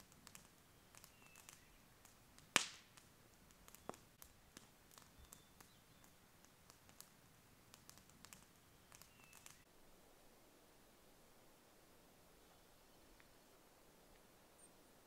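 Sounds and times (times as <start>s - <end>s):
sharp pops from fire: 0.0s - 9.7s
campfire crackling: 0.0s - 15.0s.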